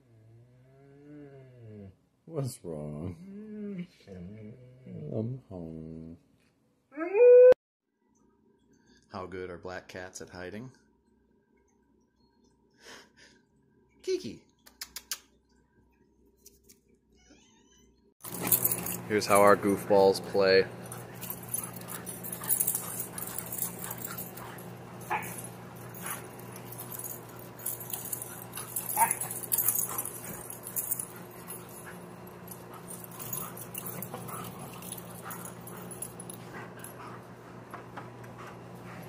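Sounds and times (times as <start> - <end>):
steady low hum: 18.3 - 39.0
dogs yipping and whimpering: 20.8 - 37.7.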